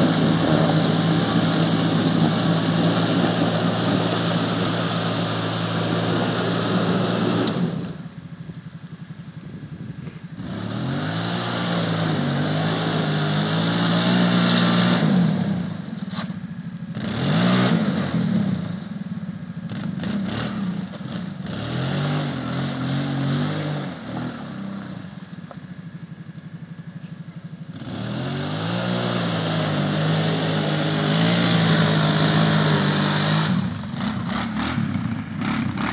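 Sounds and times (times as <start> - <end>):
mud and water spraying: 0.0 - 8.0, 10.1 - 15.7, 27.8 - 35.9
atv engine revving: 0.0 - 35.9.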